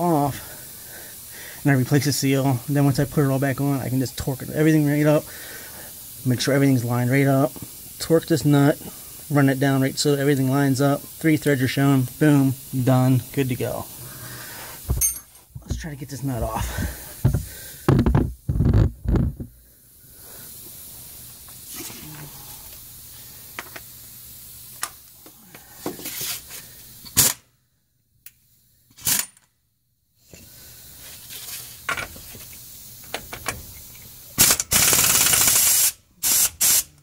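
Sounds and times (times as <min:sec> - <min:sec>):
air impact wrench: 0:16.5 - 0:19.6, 0:27.0 - 0:27.4, 0:28.9 - 0:29.4, 0:32.1 - 0:37.0.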